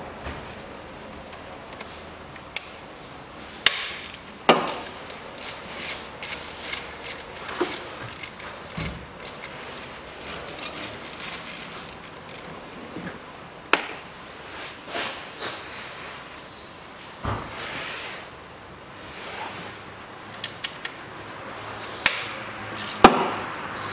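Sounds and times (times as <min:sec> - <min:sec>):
ratchet wrench clicking: 0:03.8 - 0:12.5, 0:22.1 - 0:23.5.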